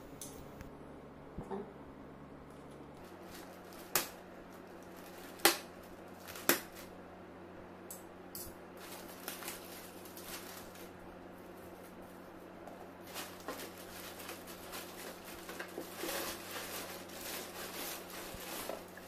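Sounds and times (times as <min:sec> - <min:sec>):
plastic crackling and rustling: 0:02.6 - 0:07.0, 0:08.8 - 0:19.0
plastic mailer bag crinkling: 0:03.0 - 0:06.9, 0:08.8 - 0:19.0.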